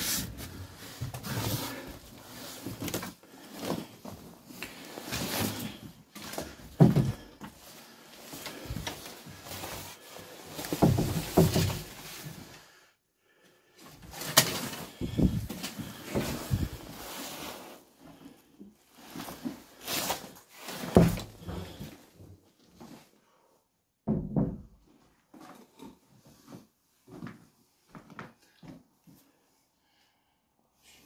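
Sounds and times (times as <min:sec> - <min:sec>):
footsteps and handling thuds: 0:00.0 - 0:07.6, 0:08.3 - 0:12.3, 0:14.1 - 0:17.0, 0:24.1 - 0:29.3.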